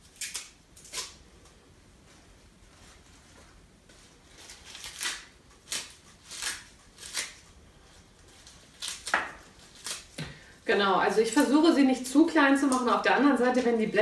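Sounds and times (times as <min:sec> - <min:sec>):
kale leaves tearing: 0:00.0 - 0:01.2, 0:04.2 - 0:10.3.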